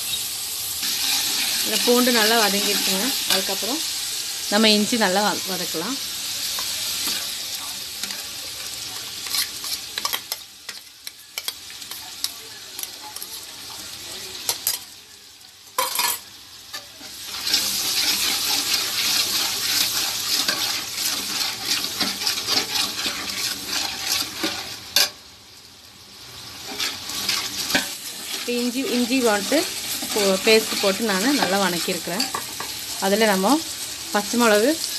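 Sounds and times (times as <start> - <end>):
paste sizzling in hot oil: 0.0 - 34.9
ladle scraping pot: 17.3 - 24.8, 26.7 - 28.5.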